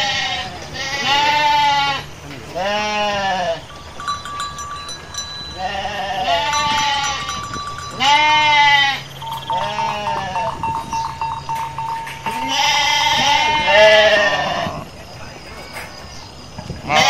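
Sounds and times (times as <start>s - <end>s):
sheep bleating: 0.0s - 3.7s, 5.6s - 10.8s, 12.2s - 14.8s.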